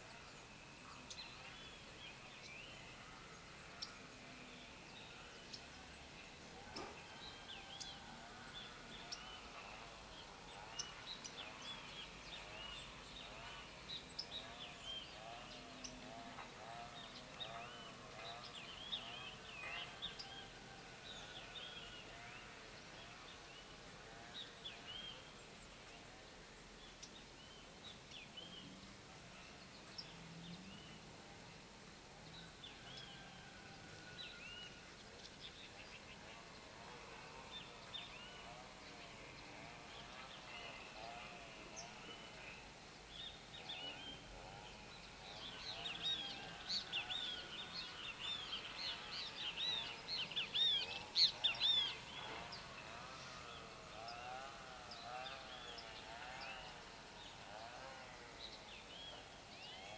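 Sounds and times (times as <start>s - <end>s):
small birds chirping: 34.6s - 59.9s.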